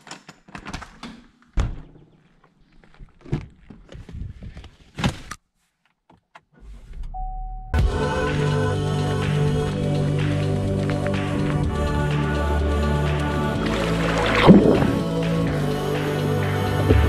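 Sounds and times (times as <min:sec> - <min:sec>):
car engine starting: 0:13.1 - 0:17.0.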